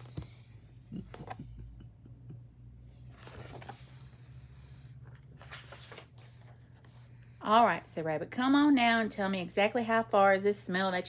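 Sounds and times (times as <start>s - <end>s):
book rustling and scraping: 3.0s - 4.2s, 5.0s - 7.1s.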